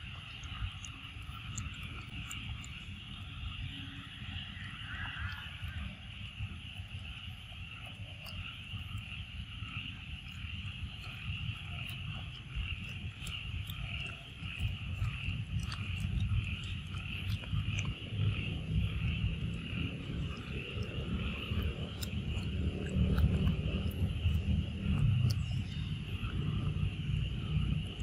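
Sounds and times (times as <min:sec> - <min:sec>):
high insect drone: 0:00.0 - 0:28.0
low rumble: 0:08.5 - 0:28.0.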